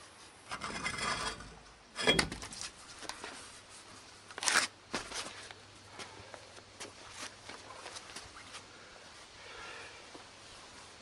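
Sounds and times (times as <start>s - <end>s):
wheel scraping against hub: 0.5s - 2.2s.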